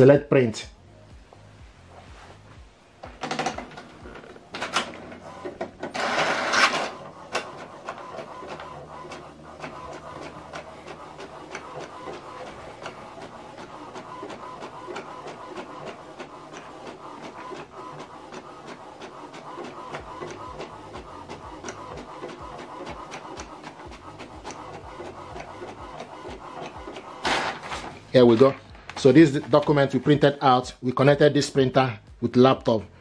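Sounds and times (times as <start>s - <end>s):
inkjet printer mechanical noises: 3.0s - 30.4s
printer printing with regular clicking: 3.0s - 30.6s.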